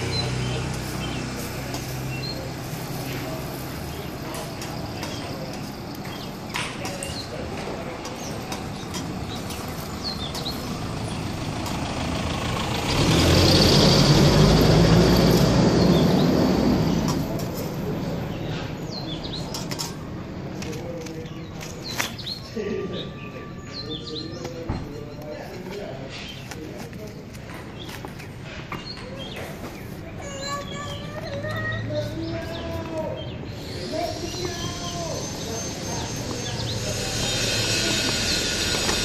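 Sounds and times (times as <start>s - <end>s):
birds chirping: 0.0s - 39.0s
vehicle passing: 9.2s - 18.8s, 29.9s - 39.0s.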